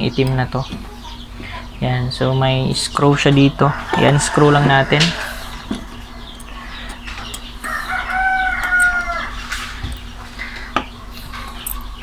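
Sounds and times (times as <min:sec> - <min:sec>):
rooster crowing: 0:03.6 - 0:06.4, 0:07.6 - 0:09.5.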